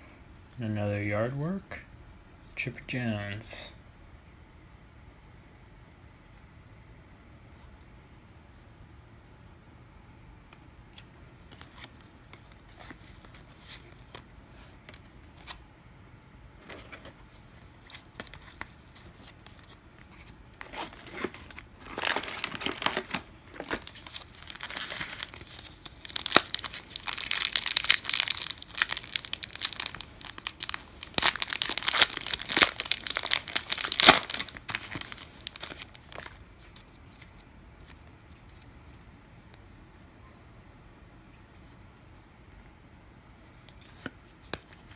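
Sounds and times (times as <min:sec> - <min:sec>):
wrapper crackling: 0:21.1 - 0:36.3.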